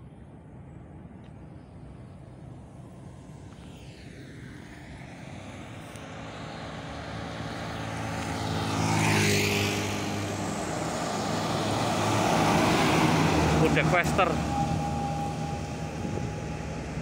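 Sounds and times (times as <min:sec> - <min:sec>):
motorbike passing: 0:05.0 - 0:17.0
truck diesel engine approaching: 0:05.2 - 0:17.0.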